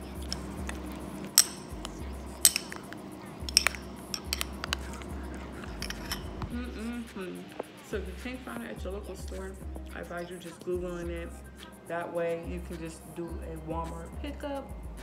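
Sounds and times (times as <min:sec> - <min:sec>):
spoon clinking glass bowl: 0:00.0 - 0:06.5.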